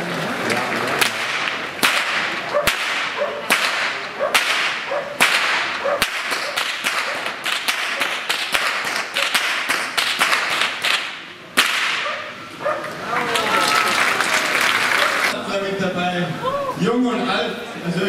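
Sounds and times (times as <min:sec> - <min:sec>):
whips cracking: 0:01.0 - 0:12.2.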